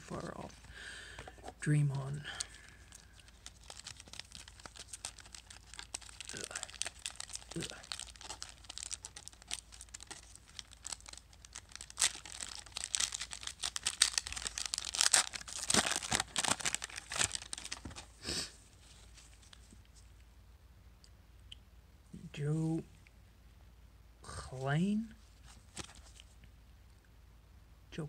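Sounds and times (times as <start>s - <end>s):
foil wrapper crinkling and tearing: 2.3s - 18.1s, 25.7s - 26.2s.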